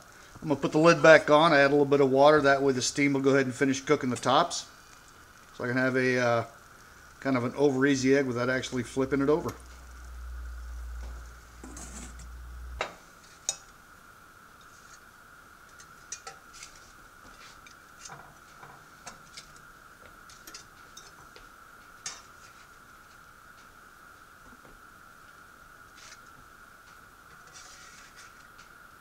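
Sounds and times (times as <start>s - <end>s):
faint high hum: 0.0s - 29.0s
lid on hot skillet hissing: 4.2s - 13.8s.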